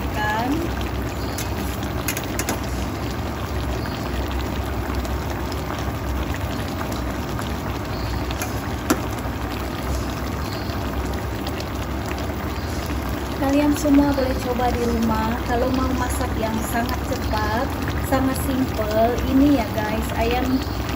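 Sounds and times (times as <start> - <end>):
sauce simmering and bubbling: 0.0 - 20.9.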